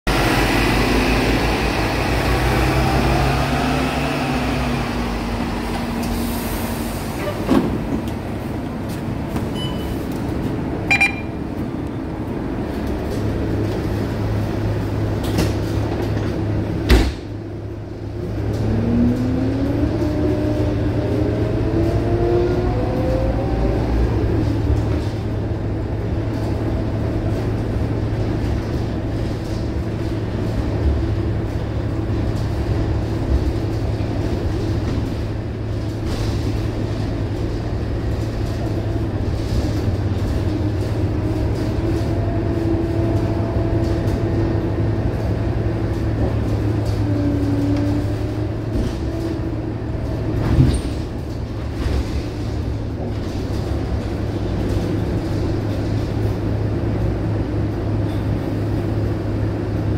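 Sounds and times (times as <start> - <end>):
diesel bus engine: 0.0 - 59.9
bus doors closing thump: 7.2 - 8.2, 16.8 - 17.4
short beep: 9.5 - 10.0, 10.9 - 11.4.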